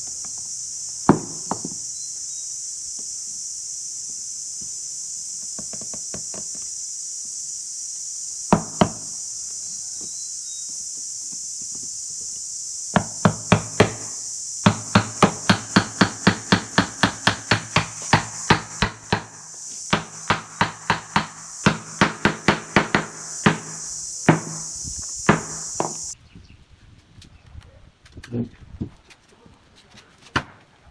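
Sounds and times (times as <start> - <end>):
wooden mallet knocking wood: 1.1 - 1.8, 8.6 - 9.1, 13.0 - 24.7.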